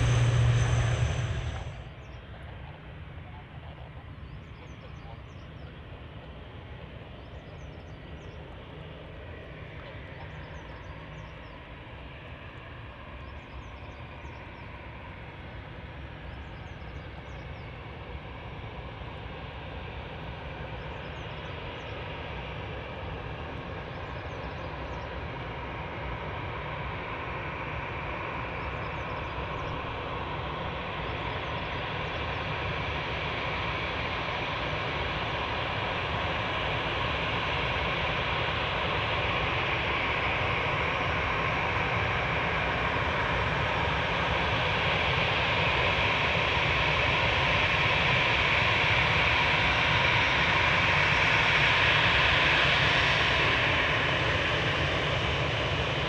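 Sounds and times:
jet engines whining: 0.0s - 2.5s.

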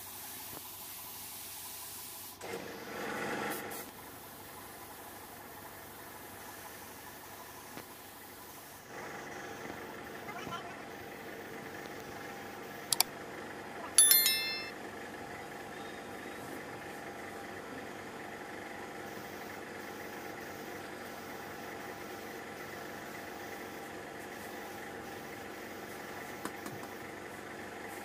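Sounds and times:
ringing metallic clink: 14.0s - 14.7s.

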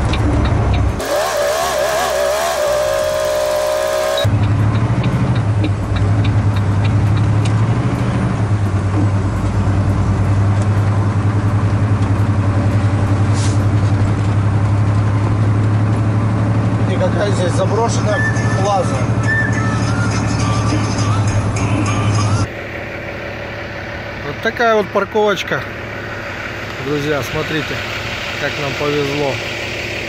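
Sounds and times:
truck engine droning: 0.0s - 30.0s
light regular ticking: 4.4s - 7.6s.

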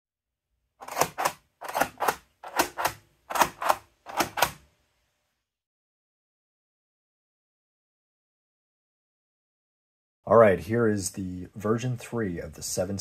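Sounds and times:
mechanical counters clacking: 0.8s - 4.6s.

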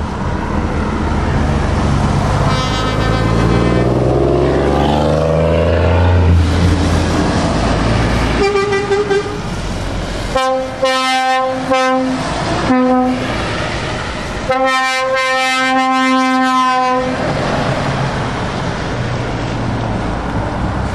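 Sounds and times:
truck engines and tyres on wet road: 0.0s - 20.9s
truck air horn blasts: 2.3s - 4.7s, 8.1s - 9.5s, 10.3s - 13.4s, 14.5s - 17.2s.

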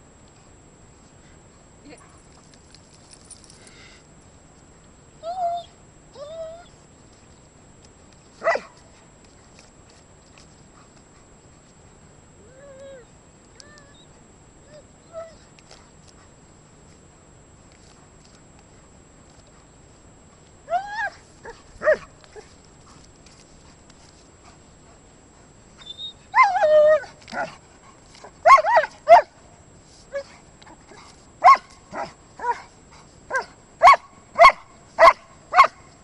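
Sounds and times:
dog barking excitedly: 28.4s - 29.3s, 31.4s - 32.6s, 33.3s - 35.8s.

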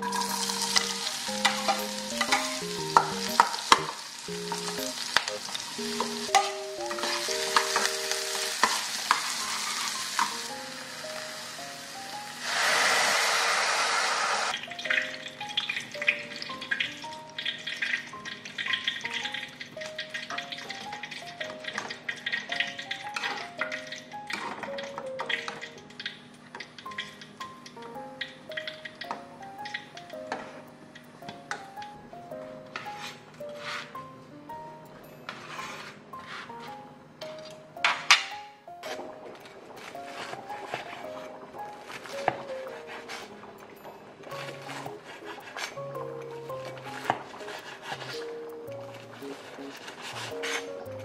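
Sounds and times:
spatula scraping and tapping pan: 0.0s - 10.4s, 32.7s - 34.0s, 35.3s - 43.4s, 44.3s - 51.0s
soft background music: 0.0s - 13.4s, 14.5s - 51.0s
onion sizzling in a pan: 0.0s - 24.2s, 38.8s - 51.0s
broth pouring into hot pan: 7.2s - 15.0s.

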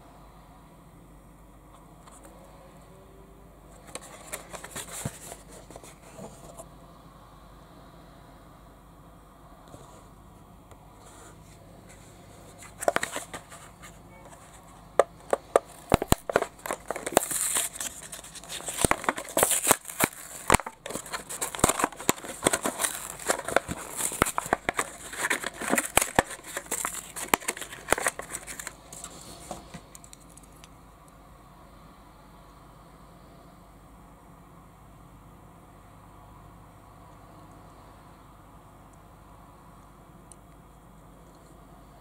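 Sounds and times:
plastic crinkling: 3.8s - 6.6s, 12.6s - 30.5s
cardboard ripping: 15.6s - 28.7s.

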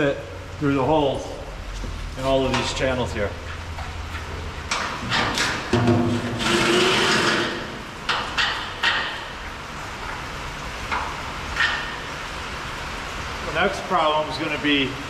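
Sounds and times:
steel bolts knocking and scraping: 4.7s - 9.2s.

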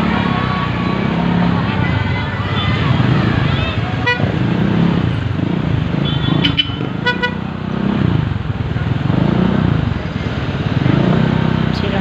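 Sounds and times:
motorcycle engine revving: 0.0s - 12.0s
street traffic: 0.0s - 12.0s
horn toots: 2.4s - 4.6s, 5.9s - 7.5s.

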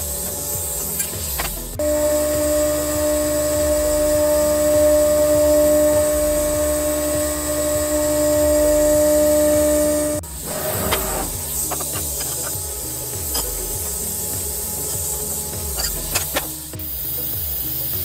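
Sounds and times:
cnc router spindle whine: 0.0s - 18.0s.

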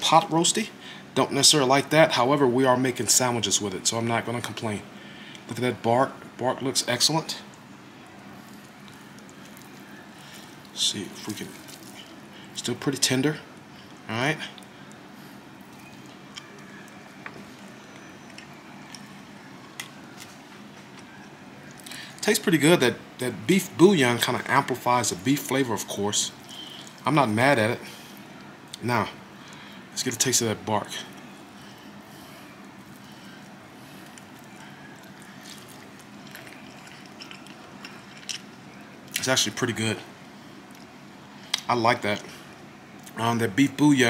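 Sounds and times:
low room hum: 0.0s - 44.0s
meat tearing squishes: 8.4s - 12.4s, 26.3s - 27.0s, 31.1s - 39.3s
person chewing: 8.5s - 10.8s, 11.4s - 12.2s, 26.4s - 27.0s, 32.8s - 39.2s.

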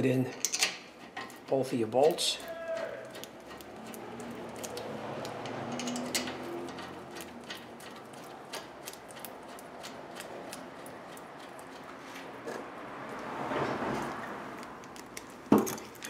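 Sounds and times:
metal parts rattling: 0.0s - 11.8s, 15.5s - 16.0s.

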